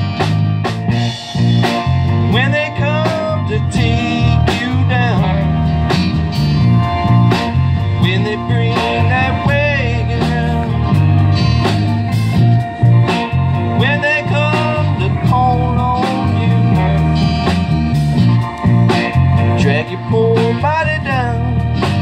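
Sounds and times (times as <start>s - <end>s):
bending sliding lead guitar: 0.0s - 22.0s
live band playing: 0.0s - 22.0s.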